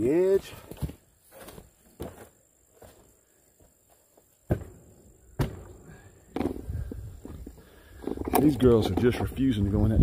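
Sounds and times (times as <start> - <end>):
boots stepping on wooden ramp: 0.5 - 8.2.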